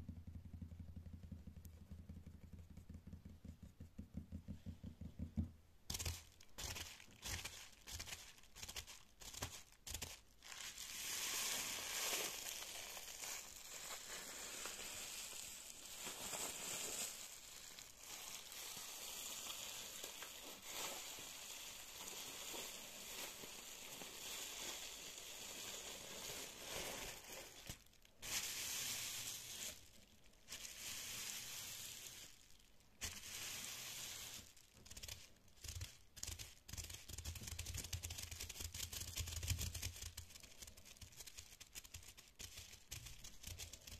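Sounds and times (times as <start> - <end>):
fingers scratching bubble wrap: 5.9 - 43.9.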